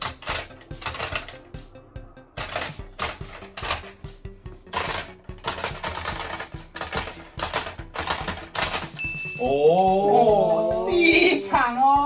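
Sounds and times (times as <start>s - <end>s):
plastic toy clacking: 4.7s - 9.0s.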